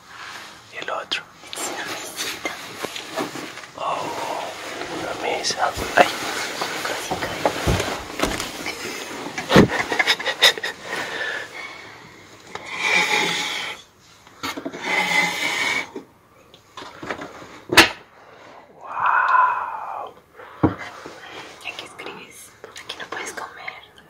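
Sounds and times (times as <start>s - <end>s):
wood scraping: 1.6s - 11.4s.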